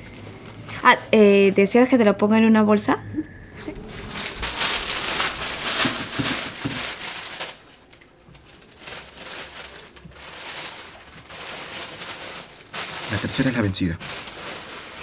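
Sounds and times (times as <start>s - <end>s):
plastic bag rustling: 3.2s - 15.0s.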